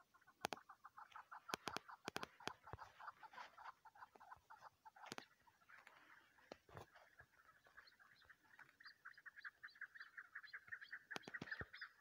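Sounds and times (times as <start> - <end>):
partridge clucking call: 0.0 - 12.0
sharp clicks: 1.5 - 2.8, 11.1 - 11.6.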